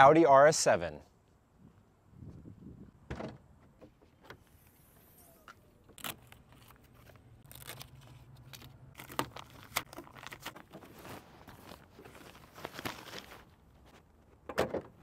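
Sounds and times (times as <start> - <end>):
fabric cover rustling: 10.0 - 14.1.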